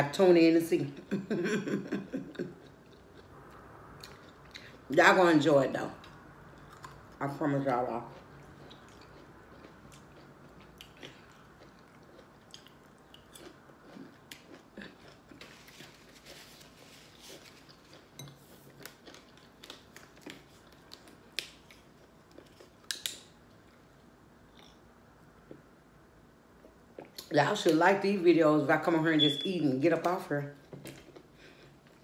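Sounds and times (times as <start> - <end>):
person chewing: 2.3 - 4.8, 6.0 - 7.2, 8.0 - 25.7, 26.6 - 27.3.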